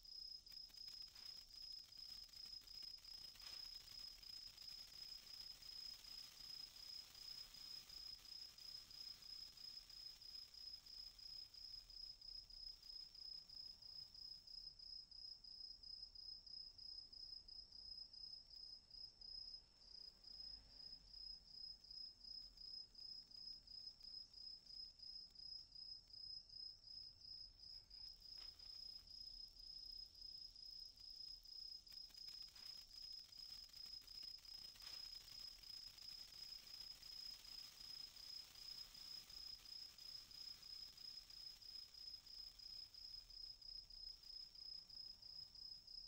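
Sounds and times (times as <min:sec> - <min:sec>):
sparkler crackles: 0:00.0 - 0:13.8, 0:28.1 - 0:45.2
cricket chirping: 0:00.0 - 0:46.0.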